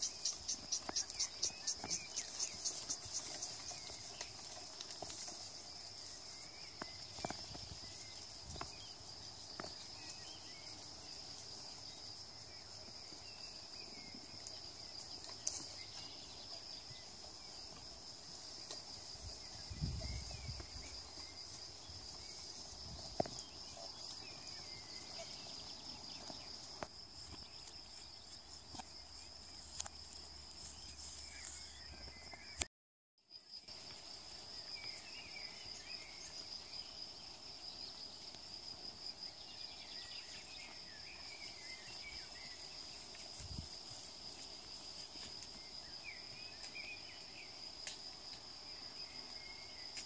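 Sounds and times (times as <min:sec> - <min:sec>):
goats stepping and rustling: 0:00.0 - 0:32.4, 0:40.8 - 0:48.6
insect chirring: 0:00.0 - 0:32.7.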